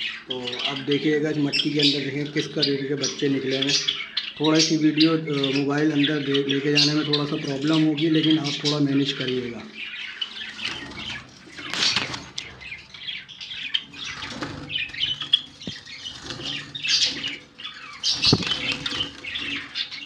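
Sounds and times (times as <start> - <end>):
birds chirping and squawking: 0.0 - 20.0
wings flapping: 10.5 - 12.7, 13.8 - 20.0
rustling bumps in cage: 10.6 - 20.0.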